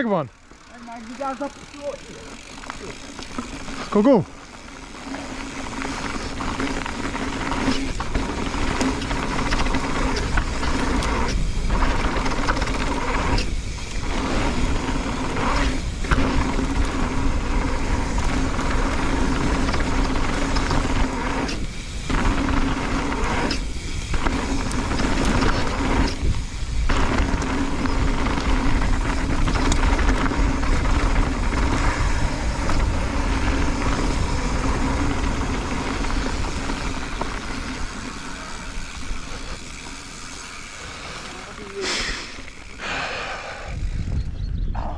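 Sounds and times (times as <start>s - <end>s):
bike tyres rattling on gravel: 0.0s - 44.5s
wind rush on microphone: 6.0s - 38.0s, 42.3s - 44.9s.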